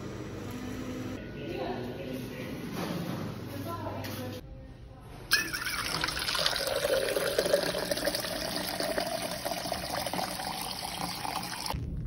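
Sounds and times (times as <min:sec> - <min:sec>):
liquid pouring into steel tumbler: 0:05.3 - 0:11.8.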